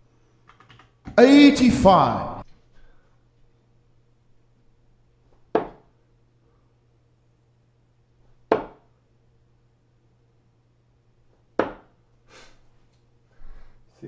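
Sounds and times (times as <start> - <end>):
darts thudding into dartboard: 5.5 - 5.9, 8.5 - 8.9, 11.6 - 11.9.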